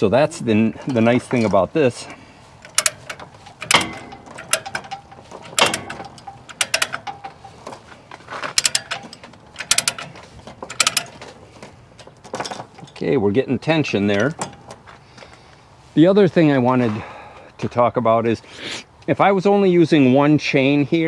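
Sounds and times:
ratchet binder pawl clicking: 2.6 - 11.4.

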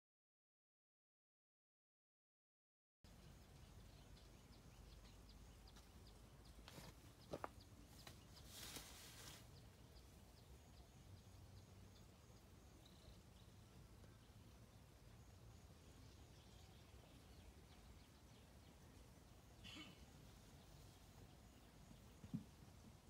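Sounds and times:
brief rustle: 8.0 - 9.5.

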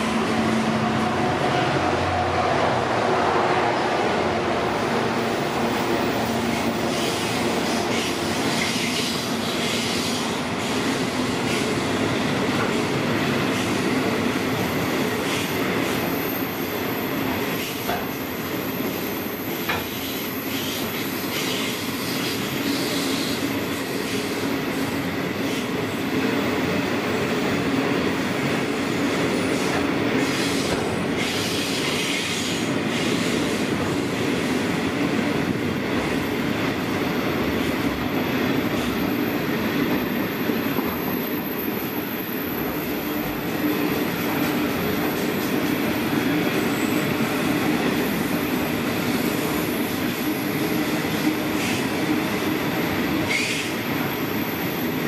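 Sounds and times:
steel wheels rumbling on rail: 0.0 - 55.0.

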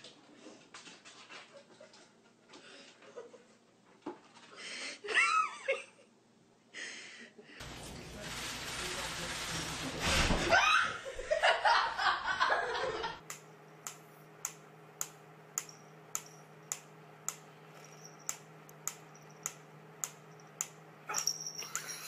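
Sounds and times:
laughter: 3.0 - 3.6, 5.0 - 6.2, 10.5 - 13.2, 21.6 - 22.0
low steady hum: 10.6 - 22.0.

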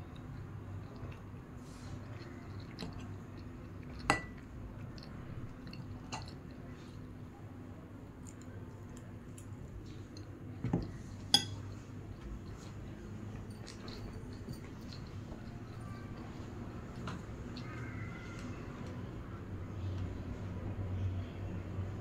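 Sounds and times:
low steady hum: 0.0 - 22.0
cutlery clinking against dishes: 11.3 - 11.7.

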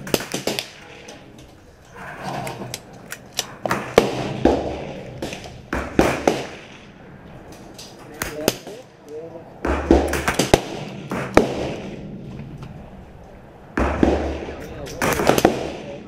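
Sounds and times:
rifle shots: 0.0 - 1.1, 3.4 - 7.0, 9.6 - 12.1, 13.7 - 16.0.

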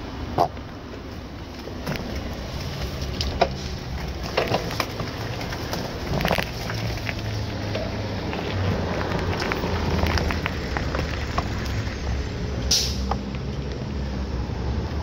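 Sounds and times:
wind and road rumble: 0.0 - 15.0
short hiss: 12.7 - 13.1.

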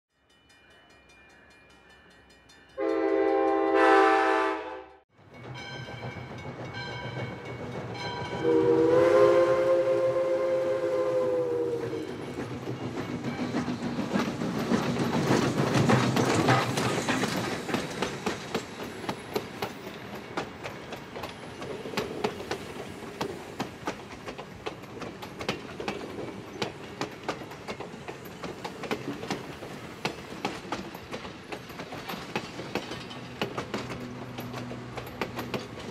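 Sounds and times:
steam whistle: 2.8 - 5.0, 8.4 - 12.2
train horn blast: 2.8 - 5.0, 8.4 - 12.0
train wheels clicking over rail joints: 5.2 - 8.8, 11.7 - 35.9.

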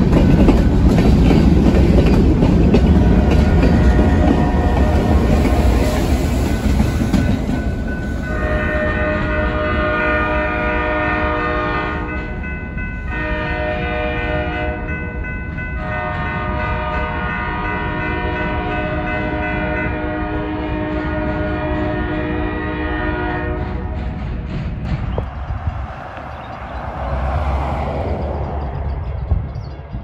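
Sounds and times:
freight train rolling on rails: 0.0 - 30.0
locomotive air horn blasts: 3.0 - 5.4, 8.3 - 12.2, 13.1 - 14.9, 15.8 - 23.9.

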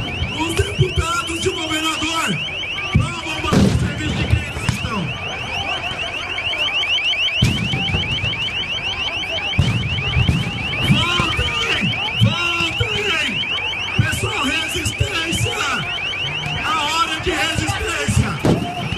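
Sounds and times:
crowd shouting: 0.0 - 18.9
electronic alarm chirping: 0.0 - 18.9.

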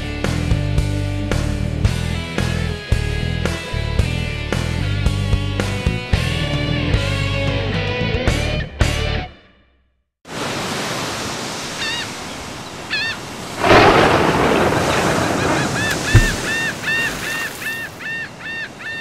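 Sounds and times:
wave breaking: 10.3 - 18.1
surf washing in: 10.3 - 18.8
gulls crying: 11.6 - 19.0
low thud: 15.9 - 16.8.

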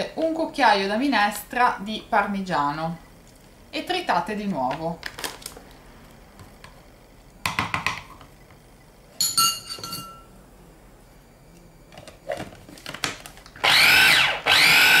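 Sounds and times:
metal spoon clinking on bowl: 9.2 - 10.3
food chopper motor blending: 13.6 - 15.0.

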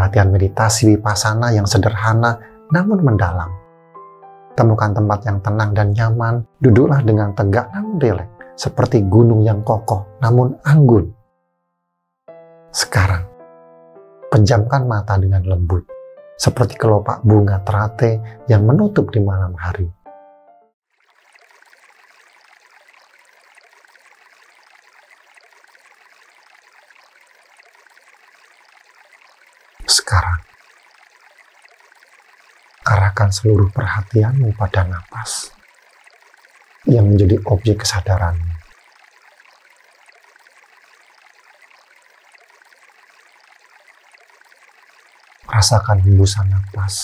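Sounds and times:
person narrating: 0.0 - 3.6, 4.6 - 11.2, 12.8 - 13.3, 16.4 - 20.0, 29.8 - 30.4, 32.8 - 35.6, 36.9 - 38.6, 45.5 - 47.0
faint running water: 0.0 - 3.7, 4.5 - 11.2, 12.8 - 13.4, 16.4 - 20.0, 20.8 - 47.0
stream trickling: 0.0 - 11.2, 12.8 - 13.4, 14.4 - 19.7, 20.8 - 47.0.

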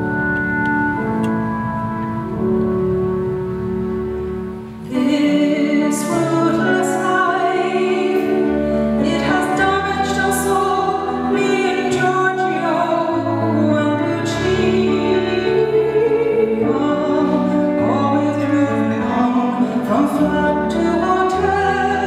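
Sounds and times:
acoustic band playing: 0.0 - 22.0
woman singing: 4.8 - 22.0.

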